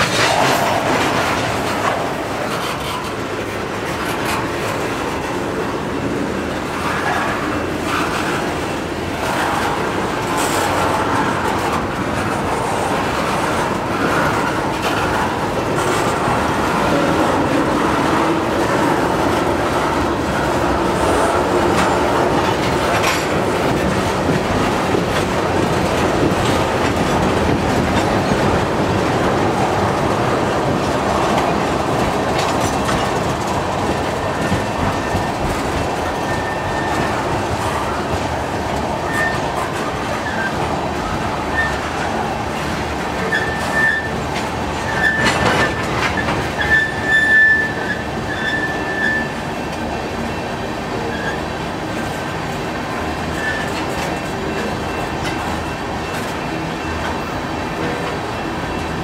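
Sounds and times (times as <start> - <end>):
train wheels clattering over rails: 0.0 - 59.0
thin wheel squeals: 36.3 - 37.1, 43.3 - 44.2, 46.6 - 49.4.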